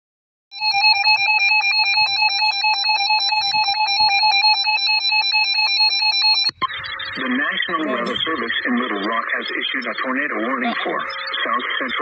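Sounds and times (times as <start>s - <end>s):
shrill pulsing alarm beep: 0.5s - 8.6s.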